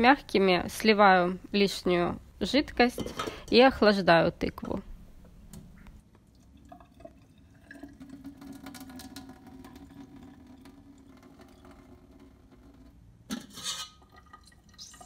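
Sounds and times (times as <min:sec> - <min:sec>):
water pouring into a steel sink: 0:06.4 - 0:13.0, 0:13.6 - 0:15.0.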